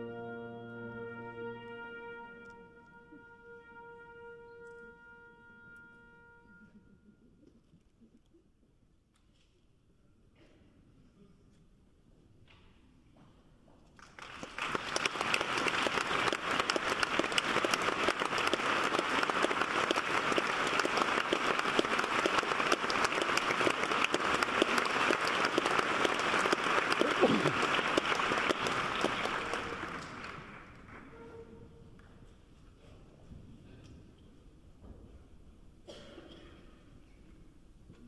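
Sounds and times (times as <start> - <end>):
audience applauding: 14.0 - 31.2.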